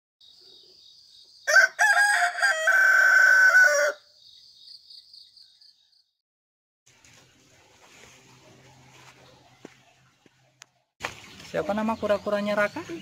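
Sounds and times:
faint high-pitched chirping: 0.2 - 1.5
rooster crowing: 1.5 - 4.1.

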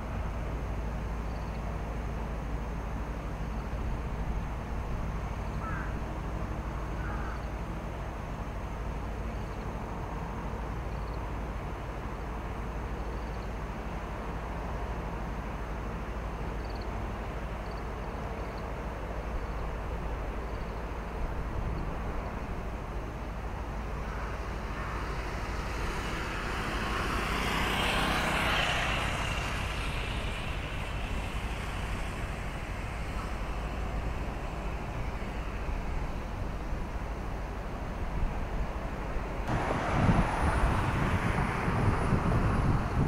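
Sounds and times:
low outdoor rumble: 0.0 - 43.0
vehicle passing: 24.0 - 37.0, 39.4 - 43.0.

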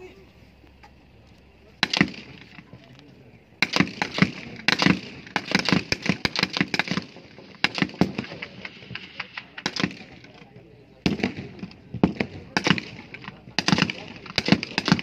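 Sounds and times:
rifle gunshots: 1.8 - 2.9, 3.6 - 15.0.

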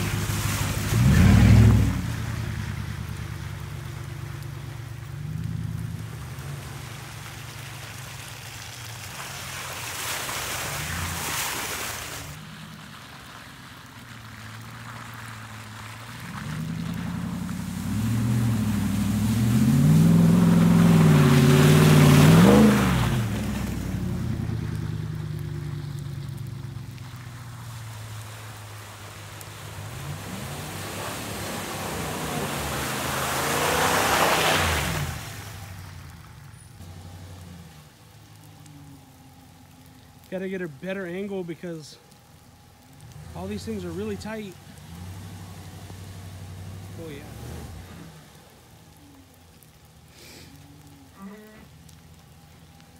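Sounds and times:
second pickup engine: 0.0 - 52.9
tyres splashing through mud: 0.0 - 52.9
pickup engine running: 12.2 - 33.8.

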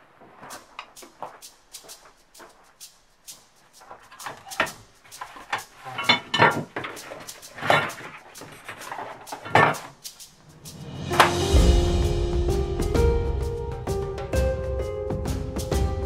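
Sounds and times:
objects clattering on workbench: 4.1 - 10.0.

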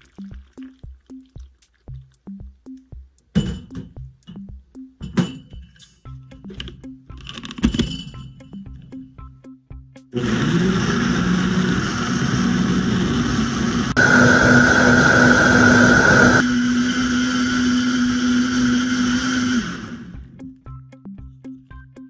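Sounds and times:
blender motor running: 10.2 - 20.3.

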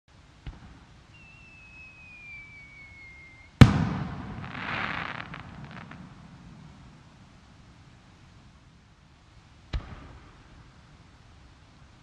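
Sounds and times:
firework crackle: 0.5 - 11.0
firework burst: 0.6 - 7.4
falling firework whistle: 1.1 - 6.0
firework launch thump: 3.6 - 6.0.

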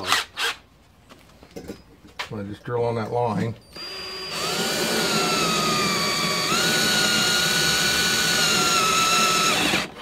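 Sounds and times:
cordless drill boring into board: 3.8 - 10.0.

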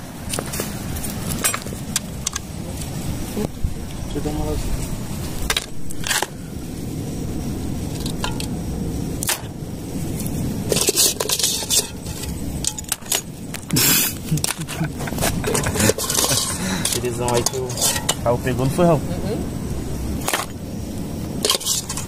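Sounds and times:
steady low rumble: 0.0 - 22.0
metal utensils and dishes clinking: 10.7 - 13.3, 15.4 - 18.3, 21.4 - 22.0
short hissing bursts: 13.3 - 14.4.

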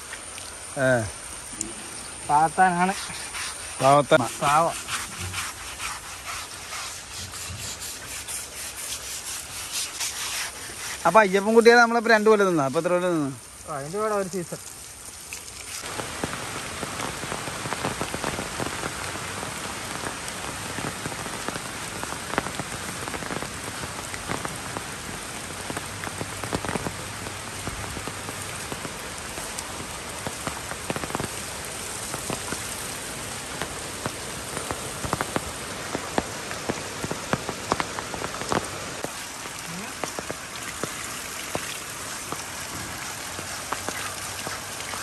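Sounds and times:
steady rain hiss: 0.0 - 45.0
raindrop hits: 11.1 - 45.0.

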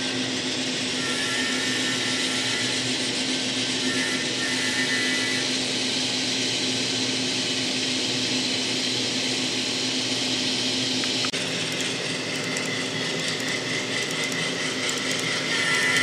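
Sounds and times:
model train motor whirring: 0.0 - 7.6, 10.9 - 16.0.

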